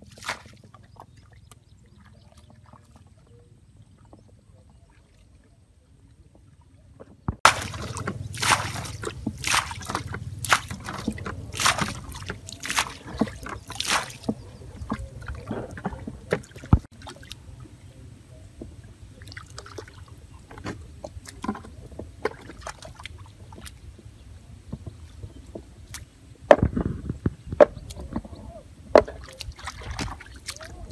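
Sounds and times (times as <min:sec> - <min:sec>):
bare feet squelching in mud: 0:00.0 - 0:01.6, 0:07.4 - 0:17.5, 0:29.0 - 0:30.9.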